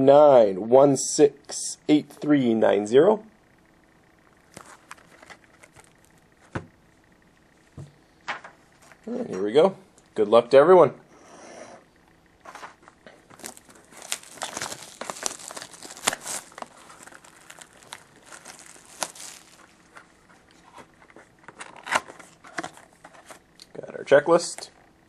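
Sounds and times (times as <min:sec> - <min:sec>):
plastic wrap crackling: 0:04.4 - 0:06.3, 0:13.2 - 0:20.6.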